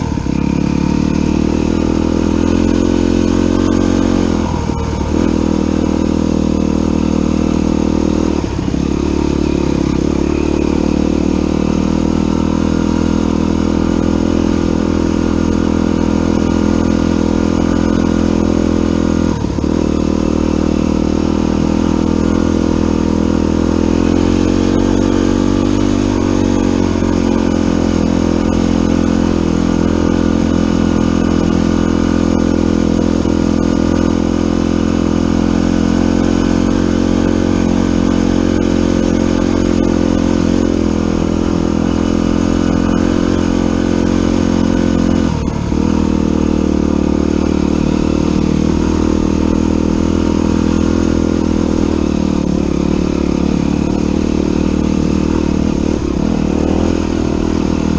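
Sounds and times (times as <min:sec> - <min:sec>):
dirt bike engine: 0:00.0 - 0:57.9.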